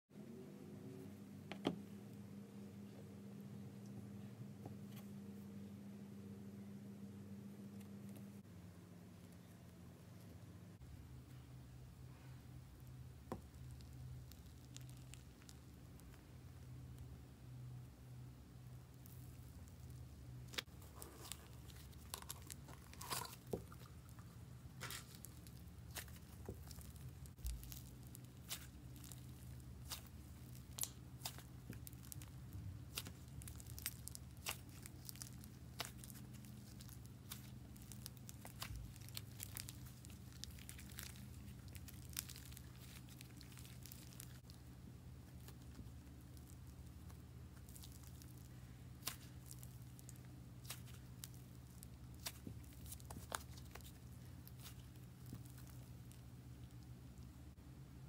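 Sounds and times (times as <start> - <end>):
steady low hum: 0.1 - 58.0
slime clicks and crackles: 13.4 - 16.2, 18.9 - 44.6, 45.3 - 56.9.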